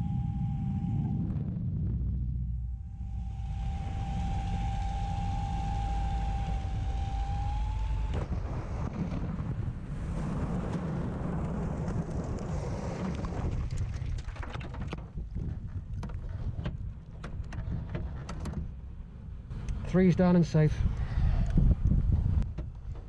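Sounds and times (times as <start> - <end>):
aircraft engine rumble: 0.0 - 23.0
wind in cockpit: 0.0 - 23.0
steady high tone: 2.5 - 7.8
aircraft impact: 8.1 - 14.7.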